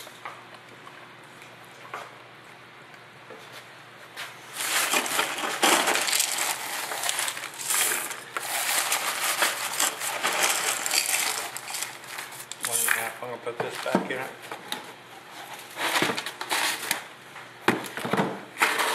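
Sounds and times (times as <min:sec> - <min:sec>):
gritty cement mix crunching: 0:04.5 - 0:14.2.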